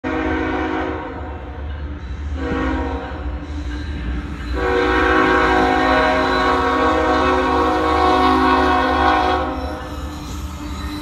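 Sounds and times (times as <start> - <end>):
locomotive air horn blasts: 0.0 - 1.2, 2.4 - 3.1, 4.6 - 9.6
low rumble of train: 0.0 - 11.0.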